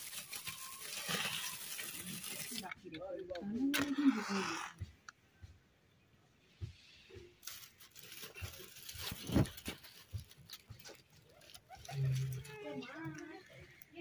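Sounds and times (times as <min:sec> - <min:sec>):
straw kindling rustling and crackling: 0:00.0 - 0:03.0, 0:07.4 - 0:14.0.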